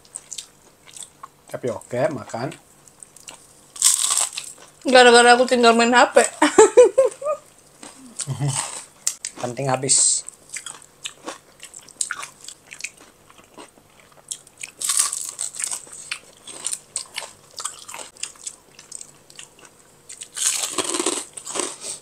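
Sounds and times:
crunchy chewing: 0.0 - 1.4, 2.9 - 4.8, 10.2 - 22.0.

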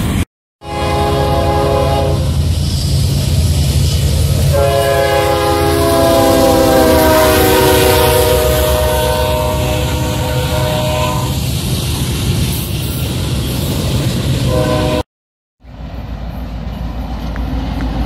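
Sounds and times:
low rumble of locomotives: 0.0 - 15.0, 15.6 - 18.0
rolling freight cars: 0.0 - 15.0, 15.6 - 18.0
locomotive air horn blast: 0.6 - 2.4, 4.4 - 11.4, 14.5 - 15.1.

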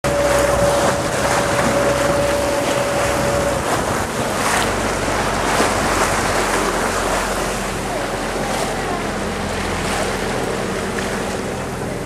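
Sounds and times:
wind on microphone: 0.0 - 7.5
boat engine humming: 0.0 - 12.0
rushing water: 0.0 - 12.0
steady high whine: 0.0 - 12.0.

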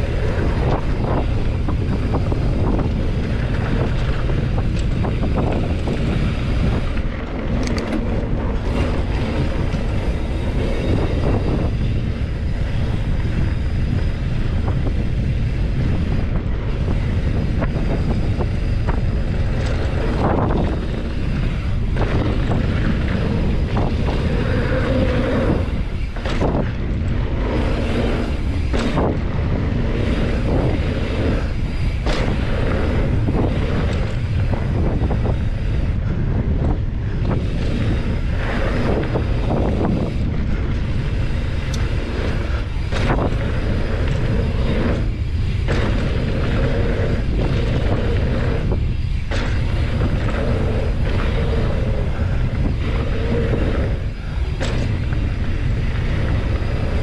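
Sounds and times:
bike knocks and clatters: 0.0 - 57.0
wind buffeting microphone: 0.0 - 57.0.

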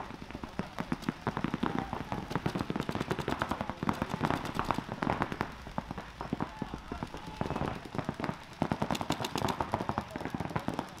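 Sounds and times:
paintball markers firing: 0.0 - 11.0.

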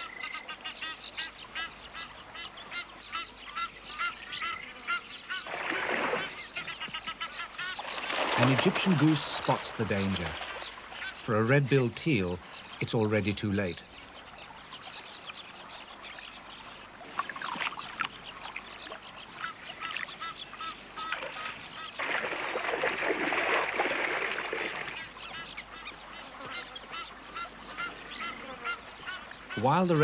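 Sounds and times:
splashing in water: 5.4 - 6.5, 7.7 - 11.3, 17.0 - 20.2, 21.0 - 25.1
geese and ducks honking: 24.8 - 30.0.

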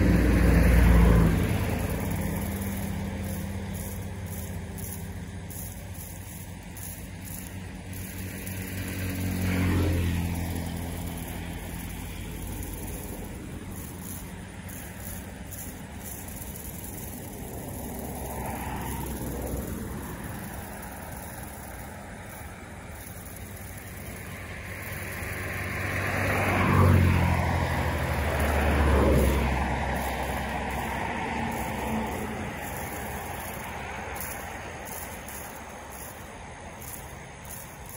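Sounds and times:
road vehicles passing: 0.0 - 37.9.

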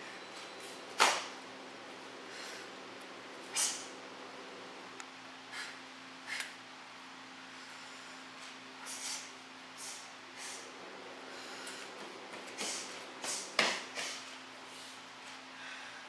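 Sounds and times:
uniform snap: 1.0 - 1.3, 12.6 - 14.2
sharp hissing breath bursts: 8.8 - 10.7.

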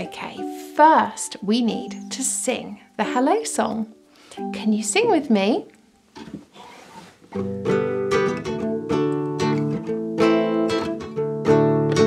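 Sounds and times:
classical guitar strumming chords: 3.0 - 6.6, 7.2 - 12.0.

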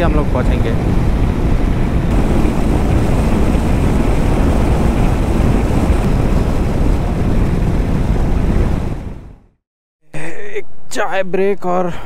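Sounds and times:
wind buffeting microphone: 0.0 - 9.5
road noise: 0.6 - 9.5.

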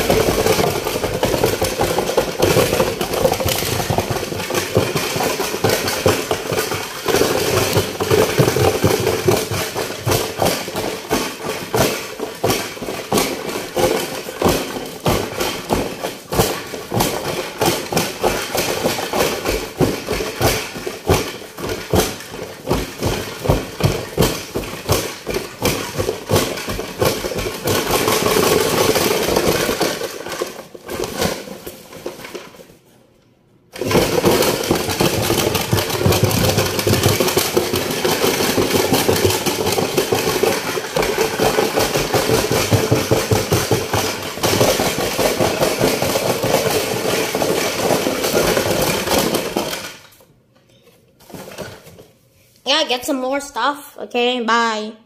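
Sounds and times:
toy washing machine drum spinning: 0.0 - 32.6, 33.7 - 50.2
loose objects knocking and rattling: 0.0 - 53.2.

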